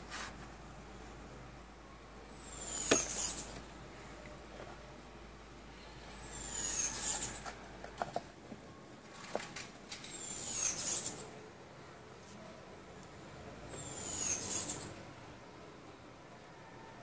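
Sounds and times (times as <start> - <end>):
high falling squeak: 6.2 - 7.5, 10.0 - 11.3.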